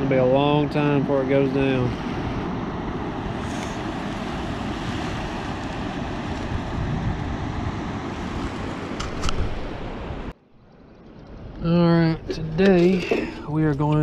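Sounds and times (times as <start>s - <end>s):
river rushing: 0.0s - 10.3s
wind buffeting microphone: 0.0s - 14.0s.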